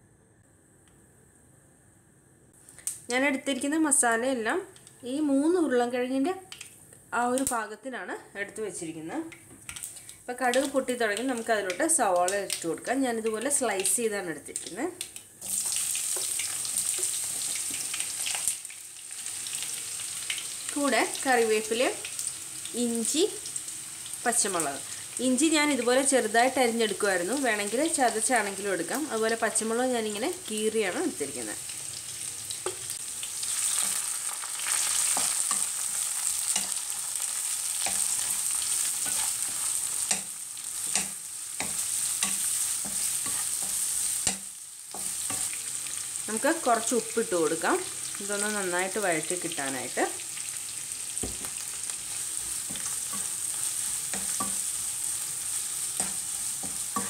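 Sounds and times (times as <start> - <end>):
onions sizzling in oil: 8.5 - 57.0
spatula knocking and scraping pan: 37.8 - 45.6, 54.0 - 54.8.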